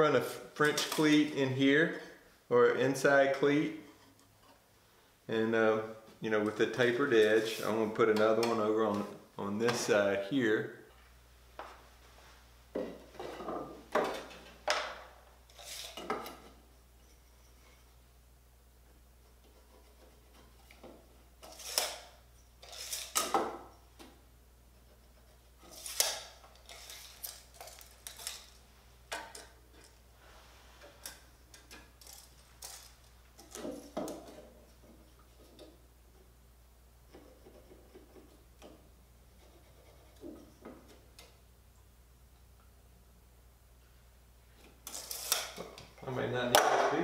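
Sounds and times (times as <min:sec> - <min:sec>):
wood scraping and rubbing: 0:39.3 - 0:41.0.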